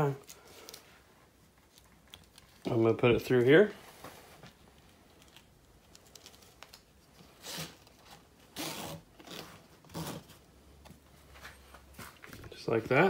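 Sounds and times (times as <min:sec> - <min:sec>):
strap webbing zipping through buckle: 0:08.5 - 0:10.3.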